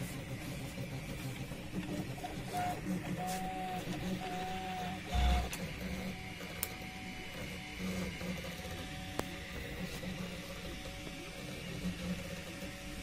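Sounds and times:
stepper motors whining: 0.8s - 13.0s
low hum: 5.1s - 5.6s.

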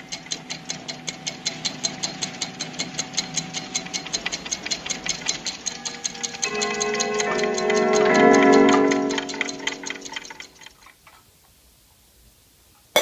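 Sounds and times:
clock ticking fast: 0.0s - 10.8s
faint held musical tones: 4.9s - 10.9s.

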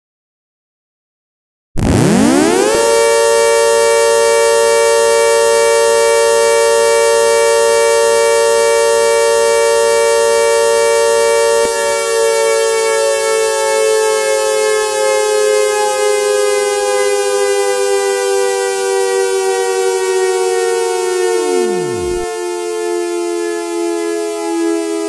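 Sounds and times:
warning siren wailing: 1.8s - 25.0s.

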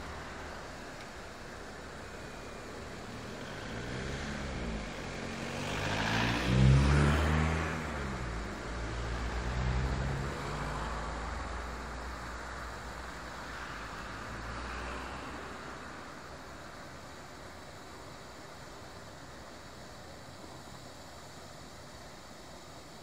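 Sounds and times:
vehicle passing by: 0.0s - 16.7s.

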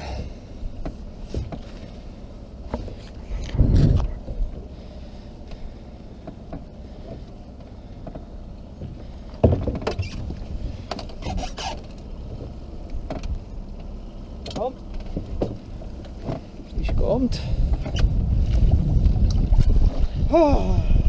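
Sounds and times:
wind rumbling on microphone: 0.0s - 5.0s, 15.0s - 21.0s
fishing gear knocking on hull: 8.0s - 11.1s
heavy low thump: 8.8s - 10.4s.

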